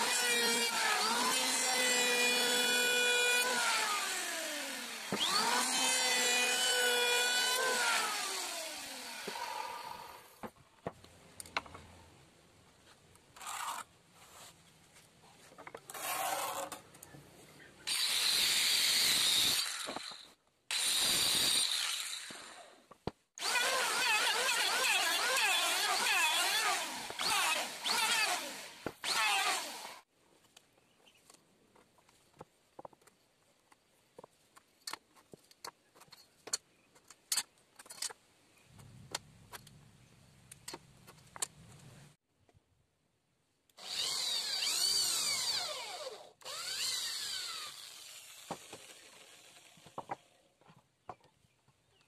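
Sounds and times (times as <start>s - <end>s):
electric hand planer: 0.0s - 10.2s, 23.4s - 30.0s
electric drill boring into wood: 0.0s - 10.3s, 17.9s - 22.7s, 23.4s - 30.1s, 43.8s - 50.2s.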